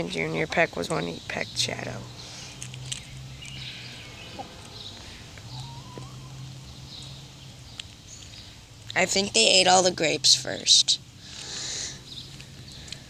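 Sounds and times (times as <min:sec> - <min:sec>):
soft chicken call: 0:05.5 - 0:06.4.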